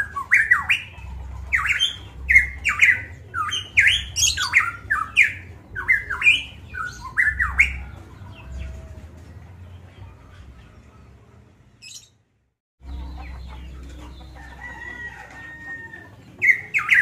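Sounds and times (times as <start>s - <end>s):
bird whistling rapid notes: 0.0s - 7.8s.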